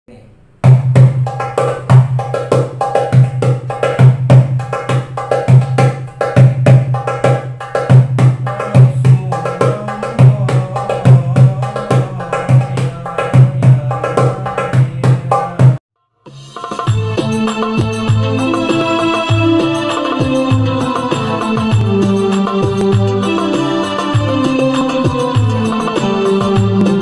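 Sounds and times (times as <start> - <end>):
hand drum playing quick rhythm: 0.6 - 15.8.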